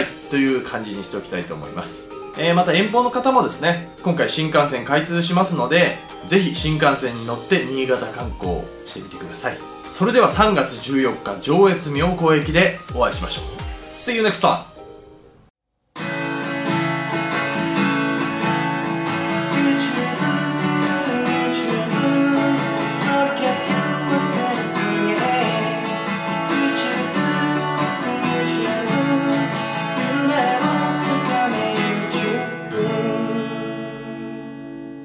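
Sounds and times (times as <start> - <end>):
acoustic guitar strumming: 0.0 - 14.0, 16.0 - 35.0
man singing: 5.8 - 13.8, 19.3 - 34.4.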